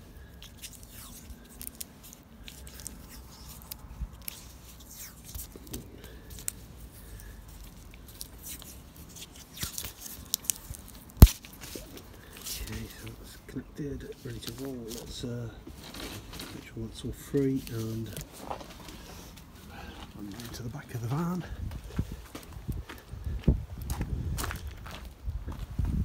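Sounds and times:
adhesive tape pulled from roll: 0.0 - 13.1.

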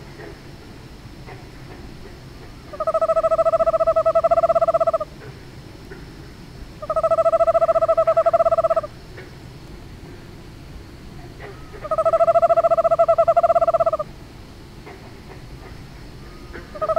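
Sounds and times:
owl trilling: 2.7 - 5.1, 6.8 - 9.0, 11.4 - 14.1, 16.7 - 16.9.

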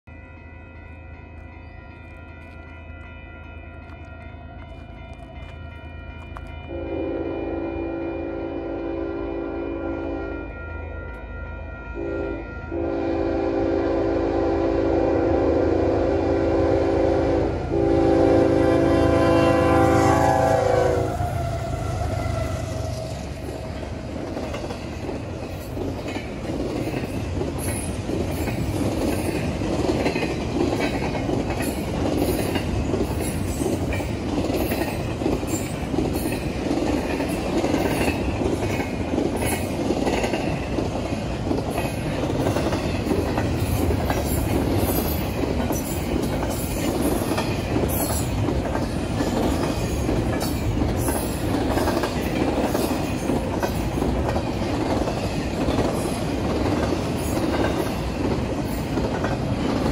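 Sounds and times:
train wheels roaring on rail: 0.0 - 59.9
wheels clacking over rail joints: 21.7 - 59.9.

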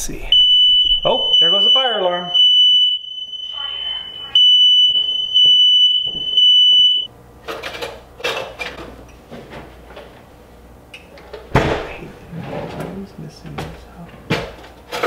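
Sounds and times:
smoke alarm beeping: 0.3 - 7.1.

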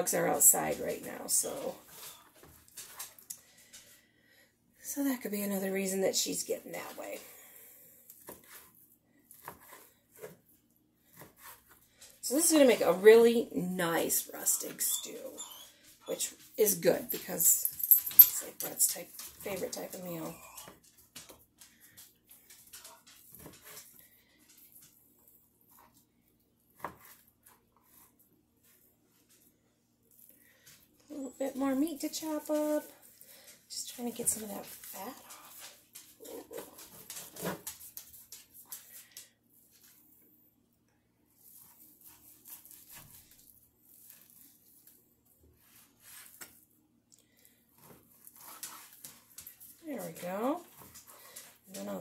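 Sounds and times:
knife cutting raw meat: 41.4 - 43.4.

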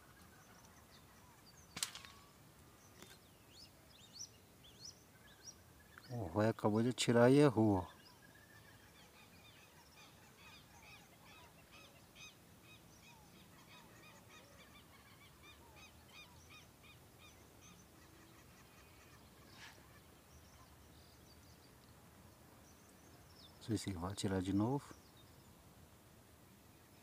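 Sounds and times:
faint sharp snap: 1.8 - 2.3.

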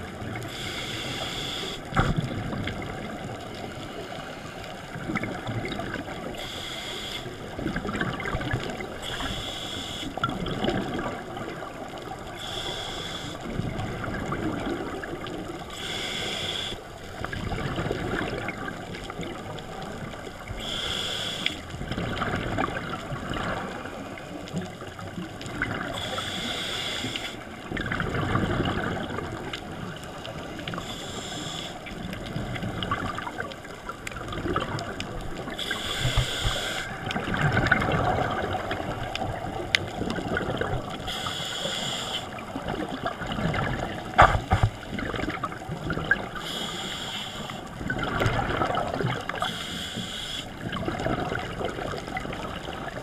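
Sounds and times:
exhaled bubbles rumbling underwater: 0.0 - 53.0
regulator inhale hiss: 0.4 - 2.2, 6.3 - 7.5, 9.0 - 10.2, 12.3 - 13.6, 15.6 - 17.0, 20.4 - 21.7, 26.0 - 27.5, 30.5 - 32.1, 35.5 - 37.0, 41.0 - 42.5, 46.4 - 47.7, 49.3 - 50.6.

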